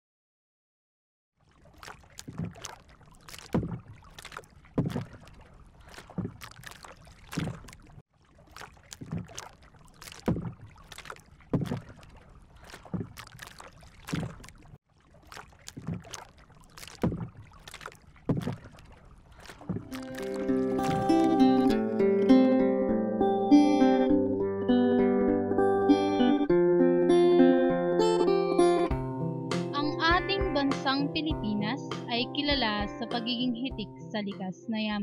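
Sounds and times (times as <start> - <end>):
oar blade splashing in water: 1.4 - 21.8.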